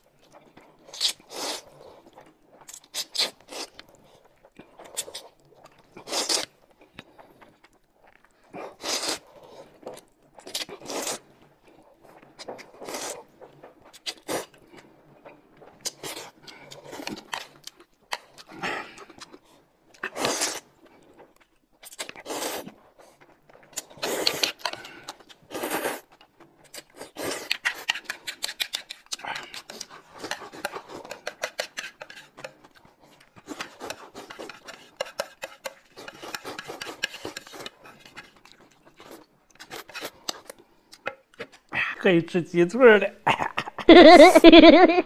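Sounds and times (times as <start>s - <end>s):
noodles slurped: 0.6s - 14.8s, 15.4s - 41.7s.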